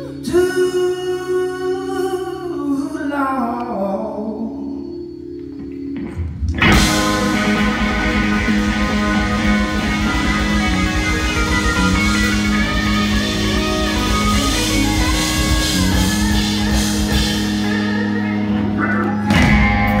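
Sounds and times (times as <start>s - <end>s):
electric guitar lead lines: 0.0s - 20.0s
drums: 5.4s - 20.0s
bass guitar: 5.8s - 20.0s.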